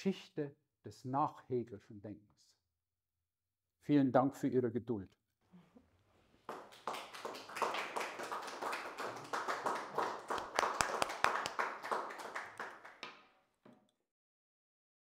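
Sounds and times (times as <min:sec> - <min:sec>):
audience applauding: 0:06.4 - 0:13.2.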